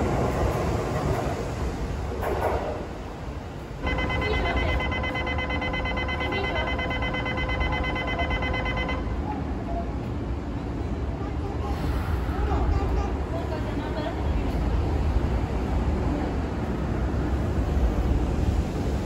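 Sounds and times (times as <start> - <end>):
train rumbling at platform: 0.0 - 19.0
departure buzzer tone: 3.8 - 9.2.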